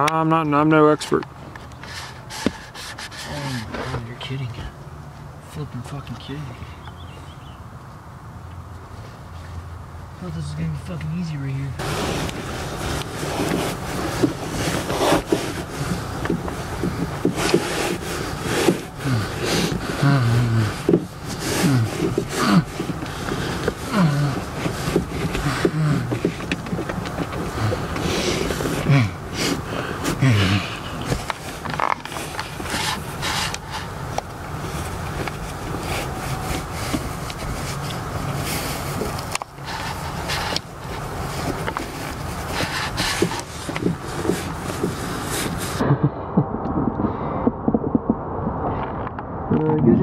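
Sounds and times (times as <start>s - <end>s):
fabric rustling and rubbing: 1.8s - 4.0s, 11.8s - 20.0s, 31.0s - 45.8s
person grunting: 20.0s - 20.7s, 21.6s - 22.7s, 23.9s - 24.4s, 28.8s - 29.2s, 30.2s - 30.8s.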